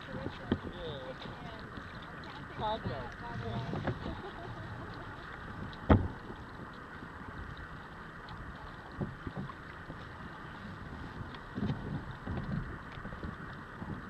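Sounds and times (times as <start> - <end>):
water noise: 0.0 - 14.0
wind: 0.0 - 14.0
thump on kayak: 3.6 - 4.2, 5.8 - 6.3.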